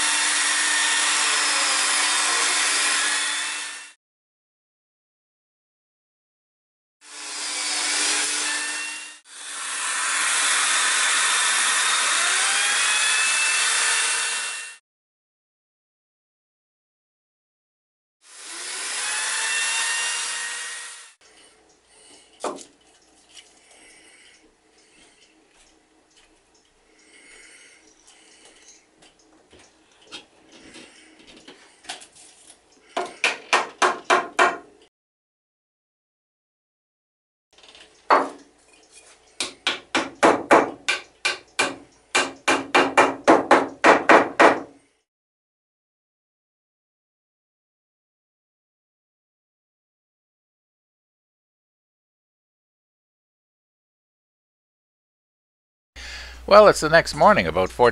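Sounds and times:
biscuit joiner cutting wood: 0.0 - 4.0, 7.1 - 14.8, 18.3 - 21.2, 39.4 - 44.7.

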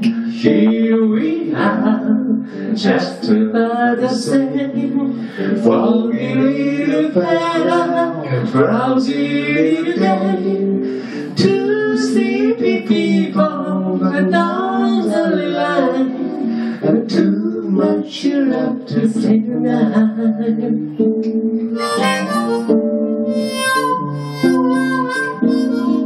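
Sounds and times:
guitar and ukulele accompaniment: 0.0 - 26.0
harmonica melody: 21.5 - 26.0.

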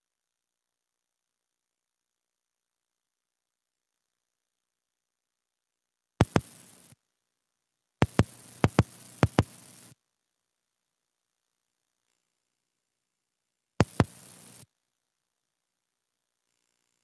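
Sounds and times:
hiss: 6.2 - 7.0, 8.0 - 9.9, 13.8 - 14.6.

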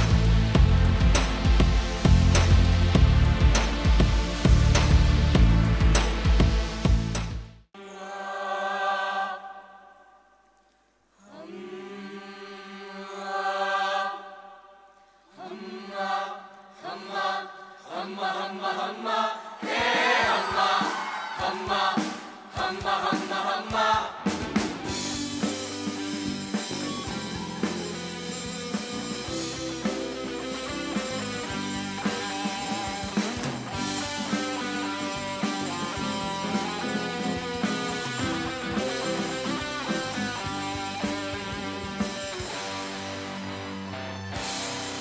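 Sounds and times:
rock band playing: 0.0 - 7.4, 24.2 - 45.0
choir singing a cappella: 7.8 - 10.4, 11.2 - 26.4.

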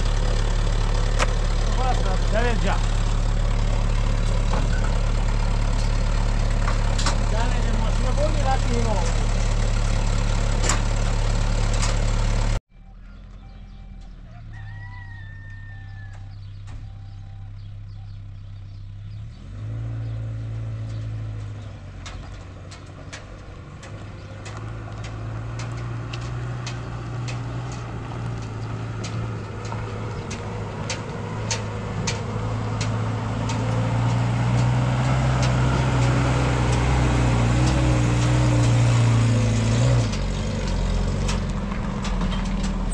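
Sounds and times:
vehicle engine running: 0.0 - 42.9
bird call: 12.8 - 18.9.

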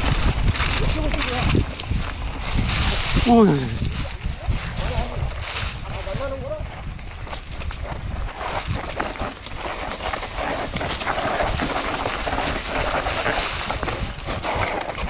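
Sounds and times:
bike tyres on dirt: 0.0 - 15.0
bike clicks and rattles: 6.8 - 15.0.

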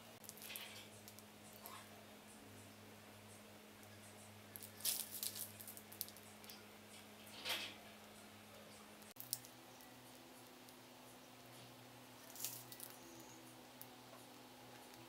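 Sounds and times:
low steady hum: 0.0 - 15.0
piping bag squishing and crinkling: 4.5 - 6.3, 9.1 - 10.8, 12.2 - 13.2.

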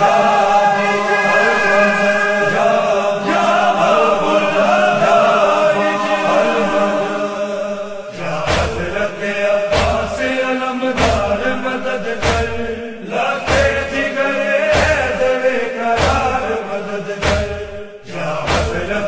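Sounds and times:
men chanting in unison: 0.0 - 19.0
heavy drum beats: 8.2 - 10.4, 11.0 - 11.6, 12.2 - 12.8, 13.4 - 16.6, 17.2 - 19.0.

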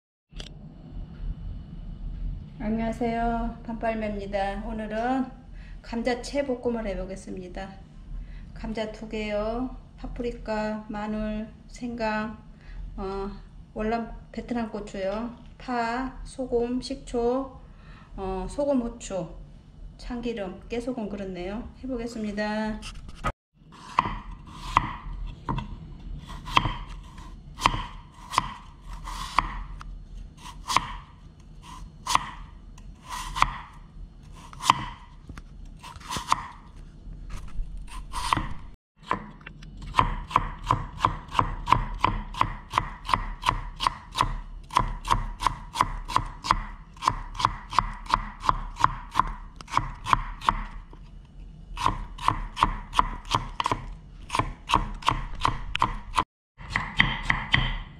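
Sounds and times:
knife chopping on wooden board: 23.2 - 25.7, 26.3 - 29.8, 30.4 - 35.1, 35.8 - 36.6, 37.9 - 50.8, 51.8 - 57.9.

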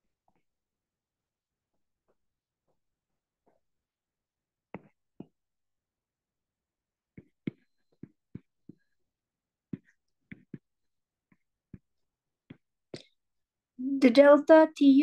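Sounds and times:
stylus tapping on glass screen: 4.8 - 5.4.

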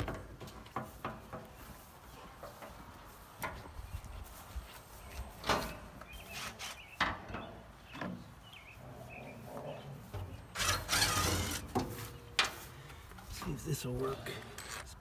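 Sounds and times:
metal rasping scrape: 10.5 - 12.2.

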